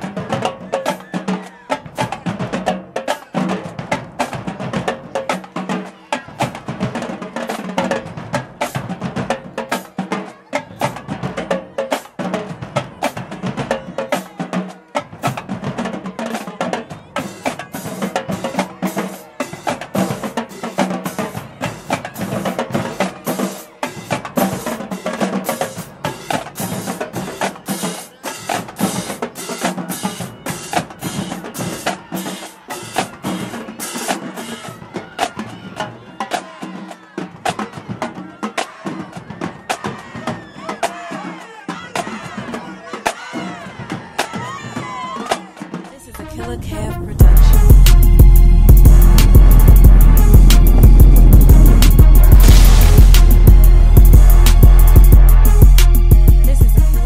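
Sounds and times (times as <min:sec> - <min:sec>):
snare drums: 0:00.0 - 0:46.1, 0:47.2 - 0:57.0
bass drums: 0:47.2 - 0:57.0
crash cymbals: 0:47.2 - 0:57.0.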